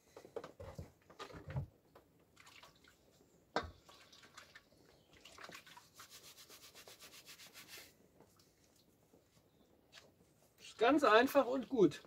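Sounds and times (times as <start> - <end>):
bristle brush scrubbing: 5.8 - 8.0.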